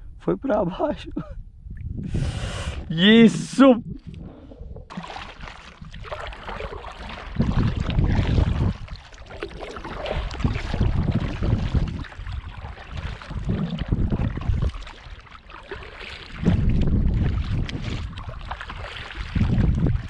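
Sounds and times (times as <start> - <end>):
wind buffeting microphone: 0.8 - 4.9, 5.8 - 9.0, 9.8 - 14.9, 16.3 - 20.0
water lapping at kayak hull: 1.8 - 20.0
paddle splashing in water: 4.2 - 20.0.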